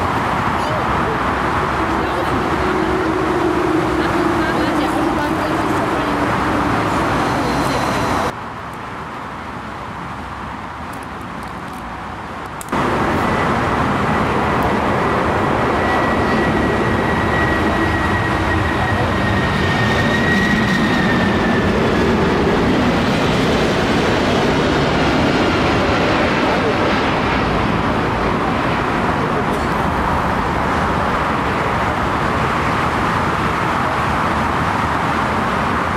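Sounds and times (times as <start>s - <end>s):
airport background noise: 0.0s - 35.9s
high jet engine whine: 0.0s - 35.9s
jet engines rumbling: 0.0s - 35.9s.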